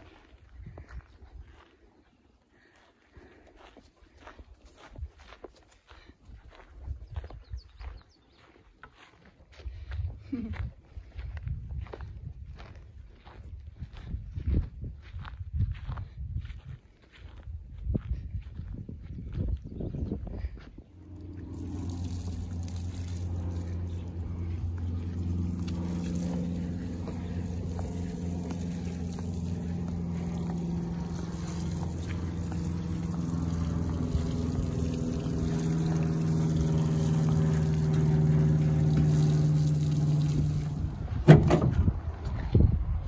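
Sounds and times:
low engine-like hum: 0:00.0 - 0:43.0
water pouring from hose: 0:21.0 - 0:41.2.

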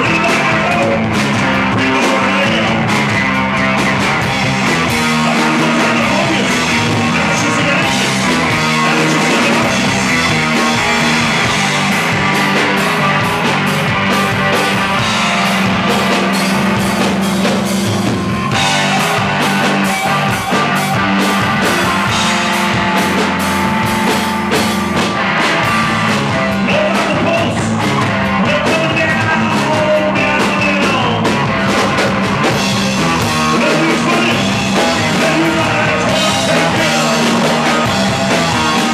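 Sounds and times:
man singing: 0:00.0 - 0:13.2, 0:26.2 - 0:38.9
bass guitar: 0:00.0 - 0:38.9
drum kit: 0:00.0 - 0:38.9
electric guitar: 0:00.0 - 0:38.9.

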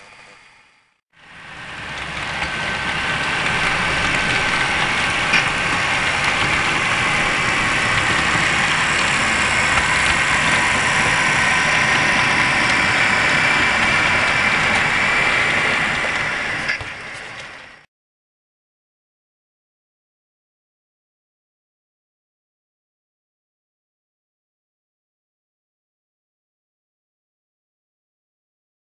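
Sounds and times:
model locomotive engine running: 0:00.0 - 0:17.9
low rumble: 0:01.4 - 0:17.8.

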